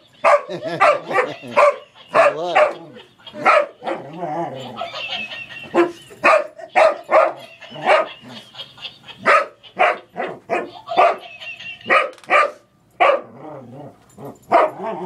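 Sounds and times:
dog barking: 0:00.2 - 0:02.8, 0:03.4 - 0:04.1, 0:05.8 - 0:08.3, 0:09.2 - 0:11.2, 0:11.9 - 0:13.4, 0:14.5 - 0:15.0.

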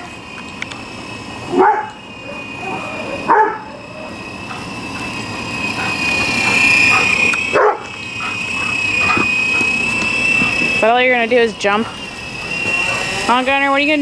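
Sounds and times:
toy helicopter rotor whine: 0:00.0 - 0:14.0
dog barking: 0:01.5 - 0:03.9, 0:07.5 - 0:07.9.

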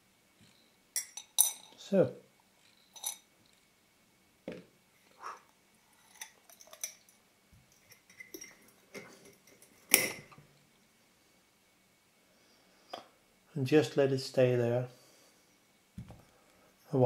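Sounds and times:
small metal parts clinking: 0:02.6 - 0:03.3, 0:06.0 - 0:10.3.

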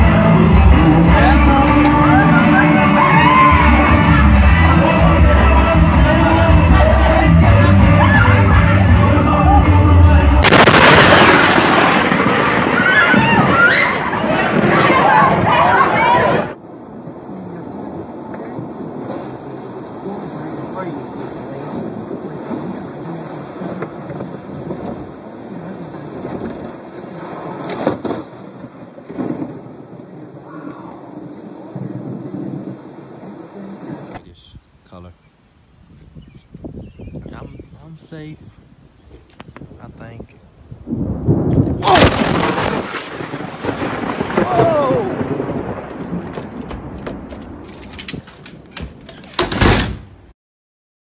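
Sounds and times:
thunder rumbling: 0:00.0 - 0:34.3, 0:38.6 - 0:49.9
loud bang: 0:10.4 - 0:15.6, 0:41.3 - 0:47.2
rain and wet road noise: 0:10.8 - 0:49.6
handling knocks and clicks: 0:46.3 - 0:50.0.

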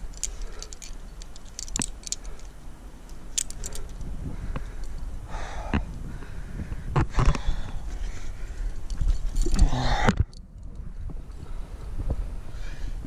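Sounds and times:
carabiners clicking together: 0:00.0 - 0:05.0.

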